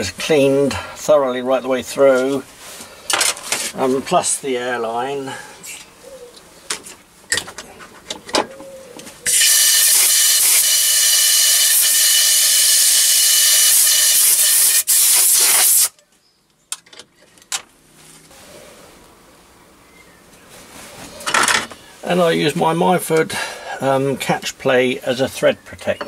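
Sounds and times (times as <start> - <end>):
compressed air blow gun hissing: 9.3 - 15.9.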